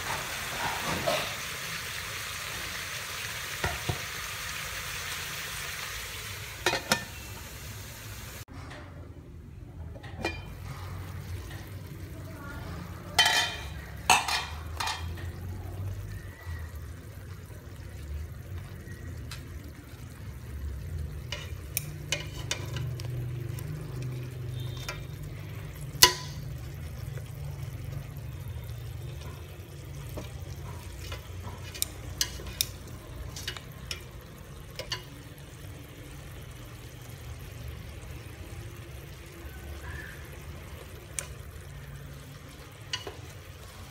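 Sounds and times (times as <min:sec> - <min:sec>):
chopsticks clinking on metal pot: 0:13.2 - 0:15.3, 0:21.2 - 0:25.2, 0:26.0 - 0:26.5, 0:30.2 - 0:34.1, 0:34.7 - 0:35.2.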